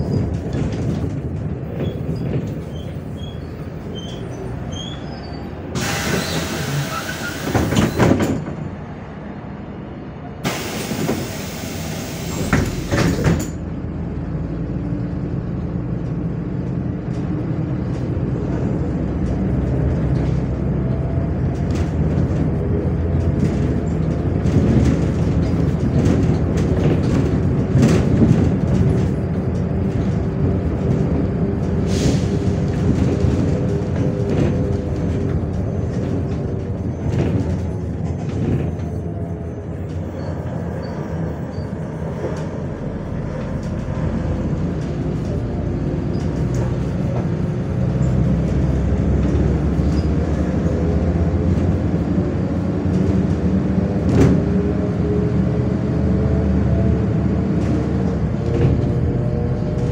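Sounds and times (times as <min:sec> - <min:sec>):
bus diesel engine running: 0:00.0 - 0:59.9
bus air brakes hissing: 0:04.8 - 0:08.3, 0:10.4 - 0:13.4, 0:31.8 - 0:32.6.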